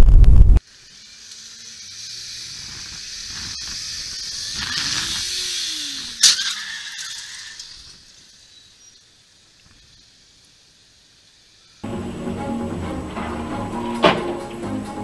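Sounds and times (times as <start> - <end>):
street traffic hiss: 0.6 - 15.0
car road noise: 11.8 - 15.0.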